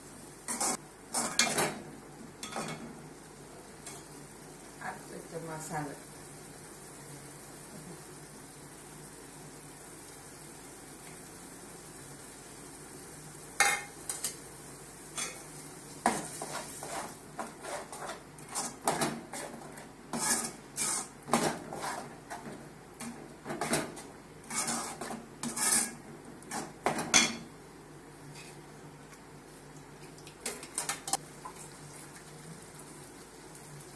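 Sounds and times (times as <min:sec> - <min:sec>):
metal spoon scraping a pot: 0:16.3 - 0:21.1, 0:21.7 - 0:22.5, 0:24.4 - 0:26.7.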